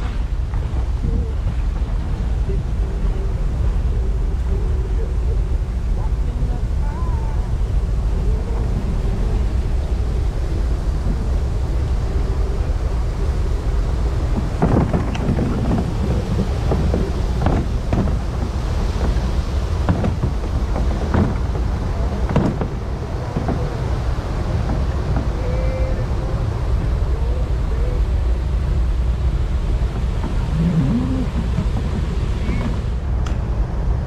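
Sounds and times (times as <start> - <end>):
wind buffeting microphone: 0.0 - 34.0
canoe paddle strokes: 8.6 - 27.5, 29.1 - 33.1.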